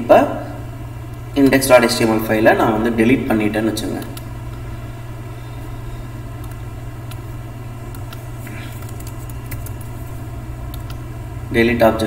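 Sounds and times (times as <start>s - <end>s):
low electrical hum: 0.0s - 12.0s
keyboard typing: 7.9s - 11.0s
mouse clicks: 10.7s - 11.0s.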